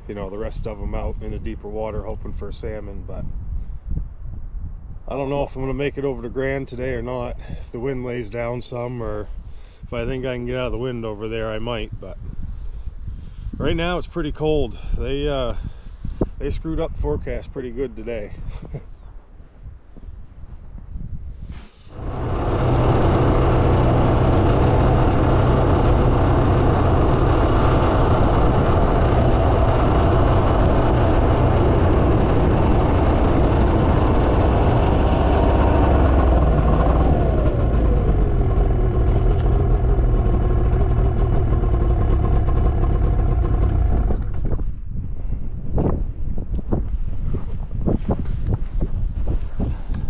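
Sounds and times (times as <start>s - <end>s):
snowmobile engine running: 21.9s - 44.5s.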